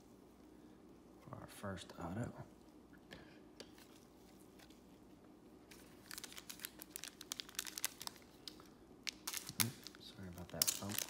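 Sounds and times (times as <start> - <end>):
foil pack crinkling and tearing: 5.7 - 11.0.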